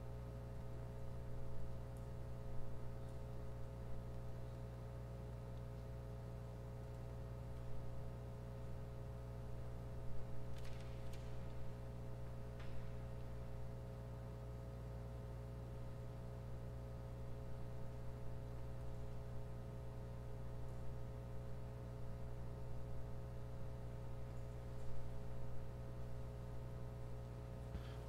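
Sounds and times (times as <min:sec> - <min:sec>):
electrical hum: 0:00.0 - 0:28.0.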